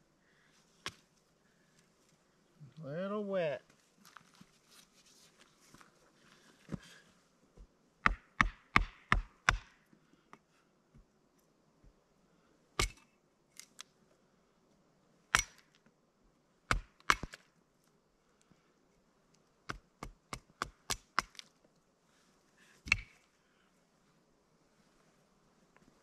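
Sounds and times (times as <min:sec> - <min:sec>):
hatchet chopping wood: 0:08.0 - 0:09.7, 0:12.8 - 0:13.1, 0:15.3 - 0:15.7, 0:16.7 - 0:17.4, 0:19.7 - 0:21.5, 0:22.8 - 0:23.2.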